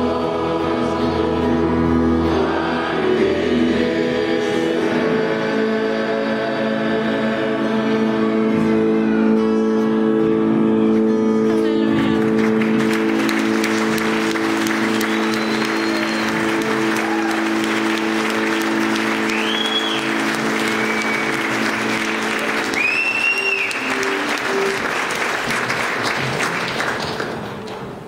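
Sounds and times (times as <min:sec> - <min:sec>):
held instrumental chord: 0:00.0 - 0:26.4
short instrumental notes: 0:08.6 - 0:26.0
congregation applauding: 0:11.5 - 0:28.0
whistles: 0:14.8 - 0:16.6, 0:19.3 - 0:24.3.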